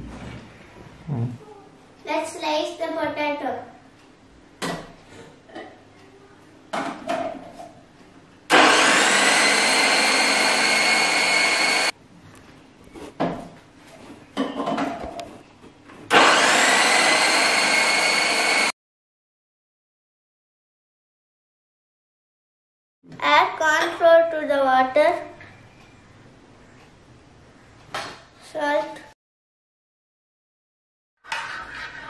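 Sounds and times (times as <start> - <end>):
food processor motor whine: 8.5 - 11.9, 16.1 - 18.8.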